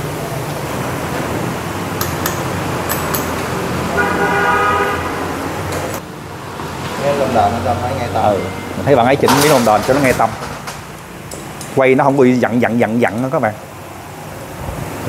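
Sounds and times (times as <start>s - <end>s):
road traffic noise: 0.0s - 15.0s
vehicle horn: 3.9s - 5.5s.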